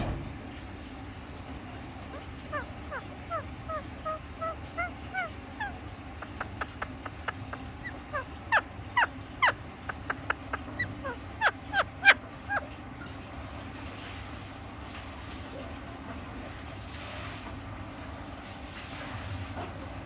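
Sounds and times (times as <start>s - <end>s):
parakeet squawking: 1.9s - 13.3s
parakeet chirping: 2.0s - 13.2s.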